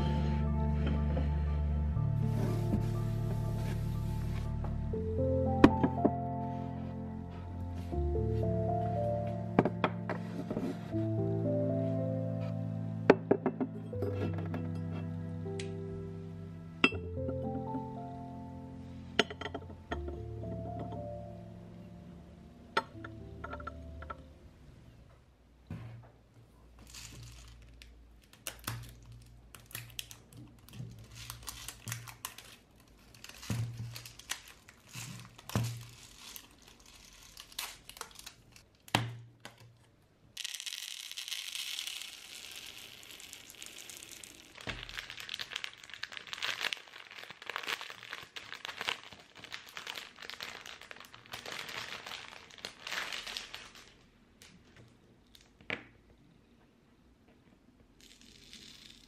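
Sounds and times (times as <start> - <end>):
beads pouring into plastic bowl: 26.8 - 27.7, 33.2 - 38.3, 40.4 - 53.9, 58.0 - 59.0
beads rustling and clattering: 26.8 - 38.7, 40.4 - 55.5, 58.0 - 59.0
plastic bottle crinkling and clicking: 26.8 - 39.8, 43.4 - 55.8.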